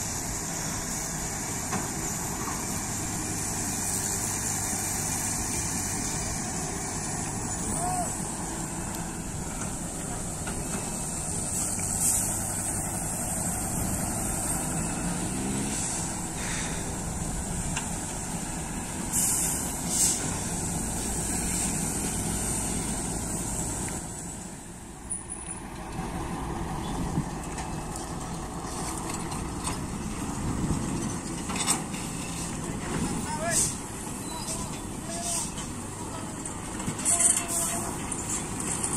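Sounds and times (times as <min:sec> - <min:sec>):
diesel truck engine running: 0:00.0 - 0:38.9
short hisses: 0:15.7 - 0:17.0, 0:19.1 - 0:20.4.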